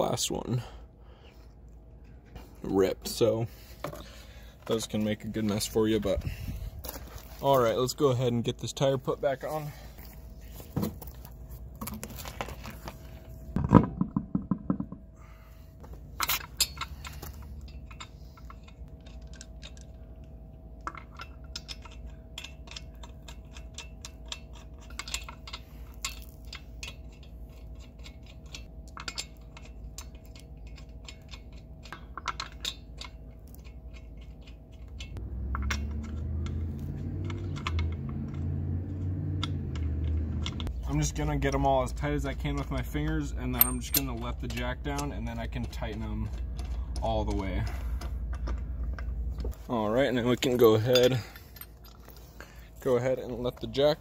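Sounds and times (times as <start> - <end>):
lug nuts clicking: 20.8 - 52.3.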